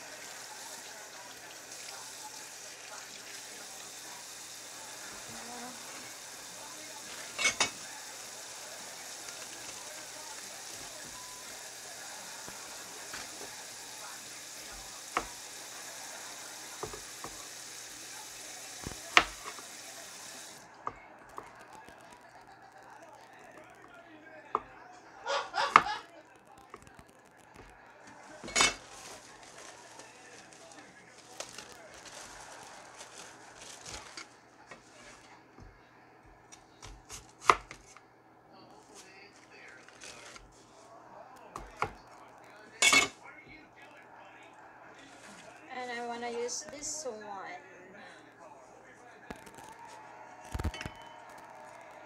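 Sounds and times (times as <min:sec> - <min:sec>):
steady hiss: 0:00.0 - 0:22.2, 0:26.7 - 0:34.4.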